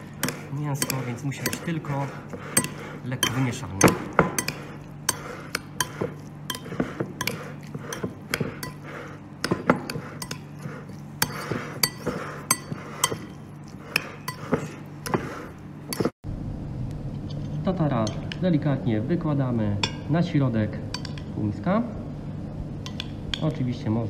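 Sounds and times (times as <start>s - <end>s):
spoon clinking and scraping bowl: 0.0s - 16.1s, 20.9s - 21.3s
steady low hum: 0.0s - 24.0s.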